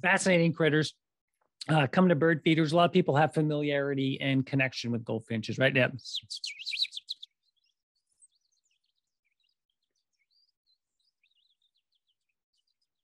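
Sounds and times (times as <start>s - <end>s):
goldfinches twittering: 6.1s - 12.8s.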